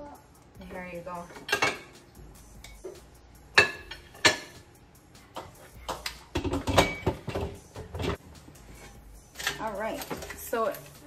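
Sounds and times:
plates clattering: 1.4 - 2.0, 2.8 - 4.6, 5.4 - 8.2.

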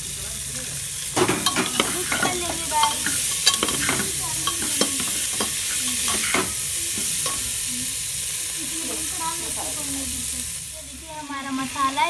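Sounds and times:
vegetables sizzling in hot oil: 0.0 - 12.0
spoon scraping and clicking on pot: 1.4 - 7.5.

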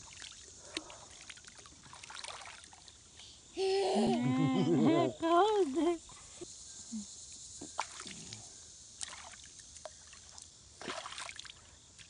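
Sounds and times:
water sloshing: 0.0 - 3.0, 9.0 - 11.6
small splashes: 0.0 - 3.3, 7.6 - 12.0.

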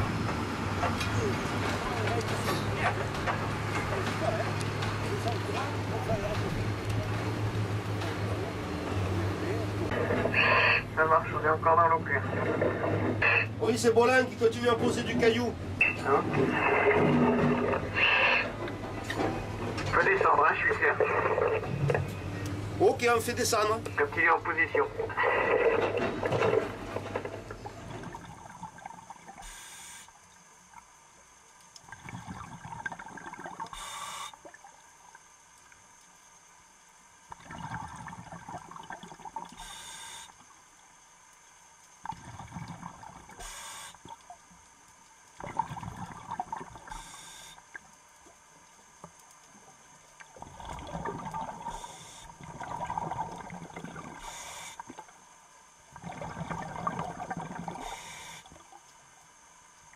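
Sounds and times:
gurgling exhaled bubbles: 15.8 - 18.8, 24.7 - 29.6, 31.8 - 34.7, 37.3 - 40.2, 42.0 - 44.2, 45.4 - 47.8, 50.2 - 55.1, 55.9 - 58.8
diver breathing through regulator: 33.7 - 34.4, 39.6 - 40.3, 43.4 - 44.0, 46.9 - 47.6, 51.6 - 52.4, 54.1 - 54.9, 57.6 - 58.5.

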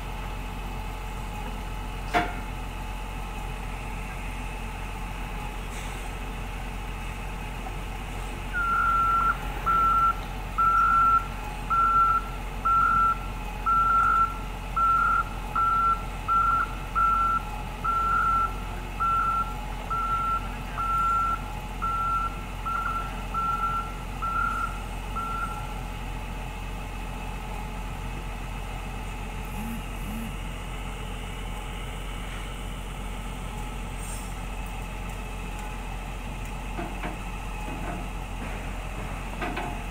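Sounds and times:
backup alarm beeping: 8.6 - 25.7
machine engine running: 29.4 - 31.0.

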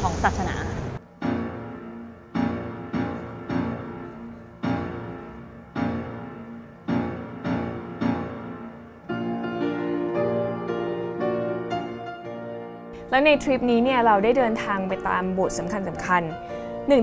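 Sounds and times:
slow piano chords: 1.0 - 17.0.

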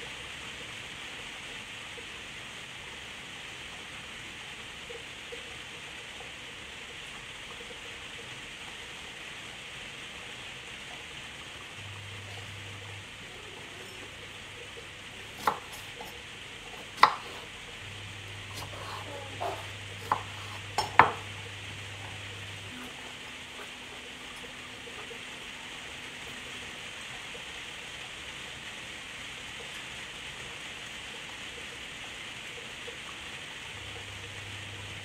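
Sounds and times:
steady hiss: 0.0 - 35.0
knife clicking on chopping board: 17.0 - 17.4, 19.4 - 21.3.

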